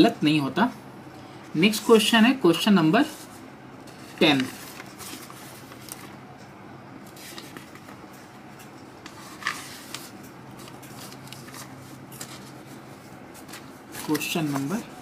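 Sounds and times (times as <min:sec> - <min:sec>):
low steady hum: 0:00.0 - 0:15.0
faint handling clicks and rustles: 0:03.1 - 0:15.0.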